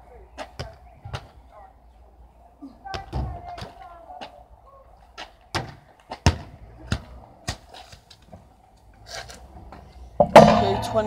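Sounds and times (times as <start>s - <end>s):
football thudding: 5.5s - 7.7s, 10.2s - 11.0s.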